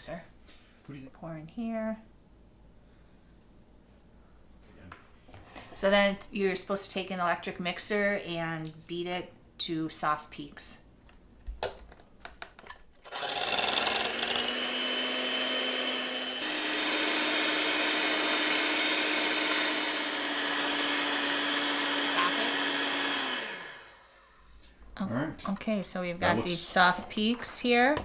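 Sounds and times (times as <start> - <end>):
electric hand mixer whirring: 13.0 - 24.4.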